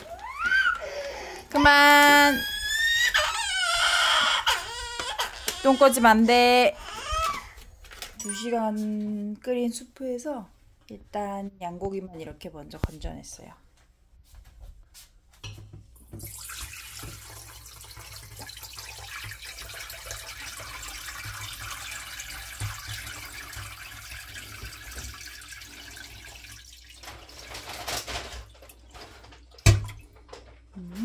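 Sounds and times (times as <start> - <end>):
broth pouring through strainer: 16.2 - 27.9.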